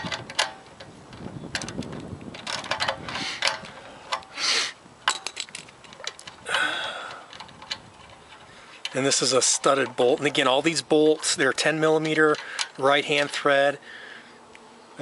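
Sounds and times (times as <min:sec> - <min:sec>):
scraping rustles: 0:00.0 - 0:06.4, 0:07.2 - 0:13.8.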